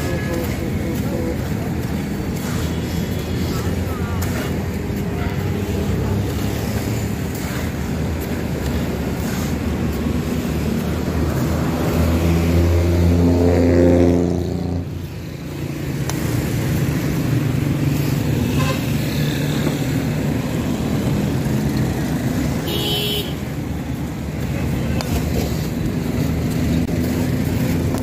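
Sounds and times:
vehicle engine passing: 0:05.6 - 0:15.0.

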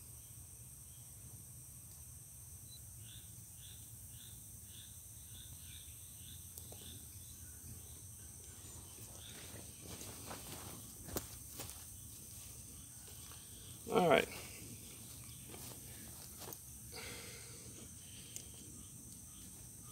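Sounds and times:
high-pitched insects droning: 0:00.0 - 0:19.9.

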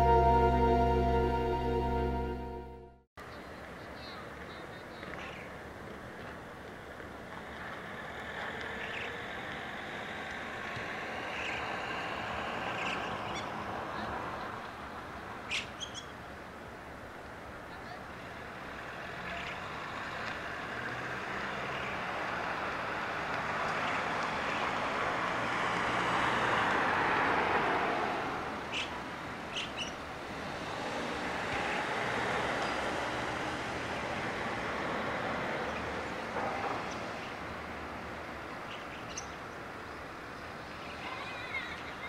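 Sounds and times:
short high chirps: 0:00.0 - 0:03.0.

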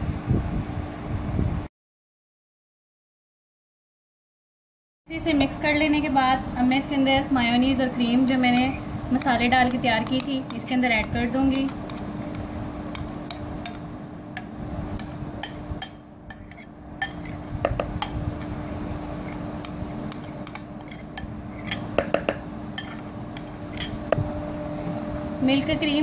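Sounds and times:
low hum: 0:05.1 - 0:26.0
spoon scraping glass bowl: 0:08.2 - 0:13.8, 0:14.4 - 0:22.0, 0:22.7 - 0:24.1.

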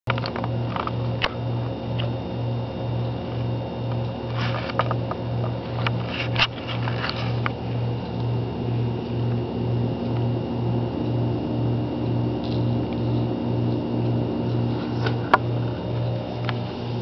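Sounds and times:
refrigerator humming: 0:00.1 - 0:17.0
high whines: 0:04.3 - 0:17.0.

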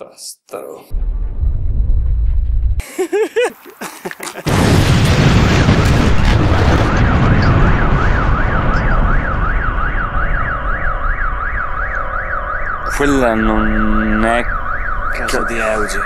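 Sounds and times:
loud explosion rumbling: 0:00.9 - 0:02.8, 0:04.4 - 0:16.0
person laughing: 0:02.8 - 0:04.7
car alarm wailing: 0:06.5 - 0:16.0.

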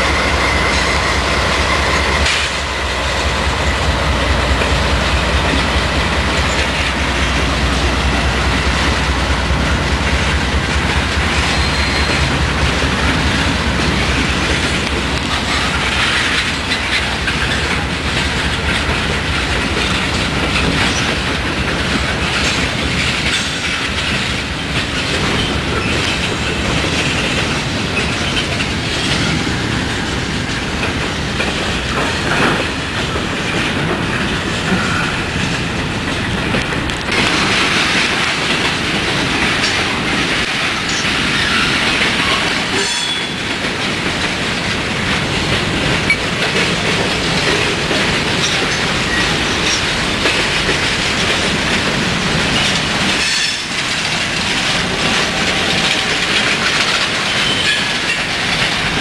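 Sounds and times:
freight train clacking over rail joints: 0:00.0 - 0:59.0
high wheel squeal: 0:11.4 - 0:12.4, 0:57.2 - 0:57.9.

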